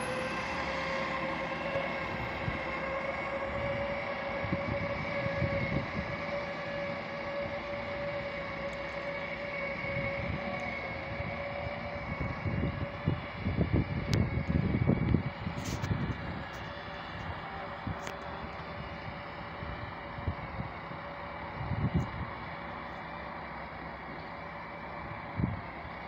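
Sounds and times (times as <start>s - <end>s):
diesel railcar engine whine: 0.0s - 26.0s.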